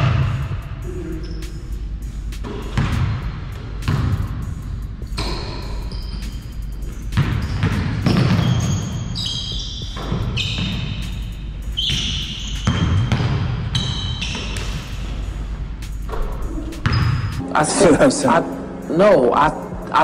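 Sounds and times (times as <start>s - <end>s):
basketball bouncing: 2.4s - 4.3s, 5.0s - 11.1s, 11.8s - 15.1s, 16.0s - 17.4s
sneakers squeaking on floor: 5.0s - 17.4s.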